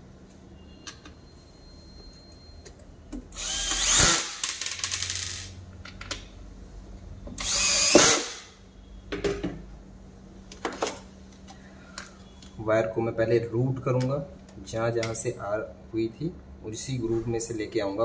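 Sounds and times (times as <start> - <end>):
cordless drill whining: 3.4 - 4.4, 7.4 - 8.4.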